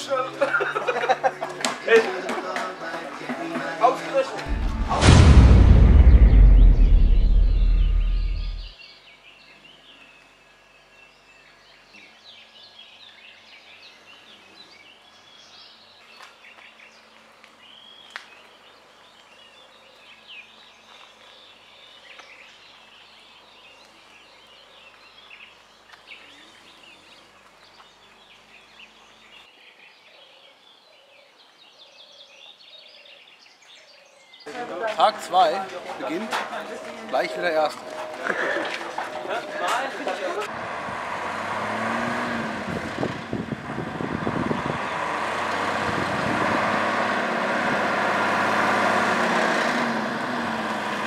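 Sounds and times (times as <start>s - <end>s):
small birds chirping: 6.3s - 35.1s.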